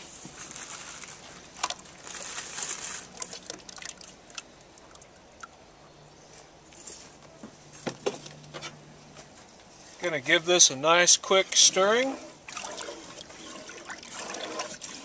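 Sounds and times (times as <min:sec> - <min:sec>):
cream pouring and splashing: 0:01.0 - 0:04.9, 0:12.3 - 0:15.0.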